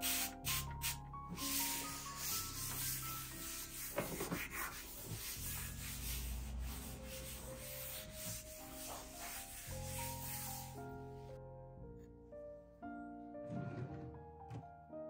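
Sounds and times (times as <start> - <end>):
cloth wiping a desk: 0.0 - 11.3
soft background music: 0.0 - 15.0.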